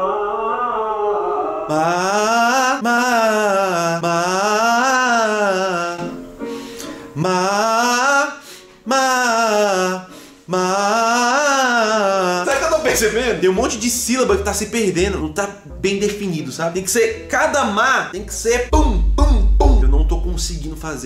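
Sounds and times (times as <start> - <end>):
man singing vocal exercises: 1.7 - 6.2, 7.0 - 15.4, 18.2 - 21.0.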